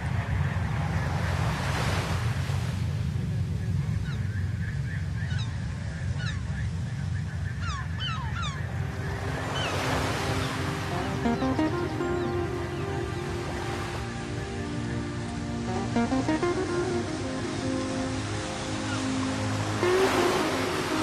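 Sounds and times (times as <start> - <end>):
wave washing in: 0.0 - 4.1, 7.8 - 21.0
surf rumble: 0.0 - 21.0
gulls squawking: 4.0 - 21.0
music: 8.8 - 21.0.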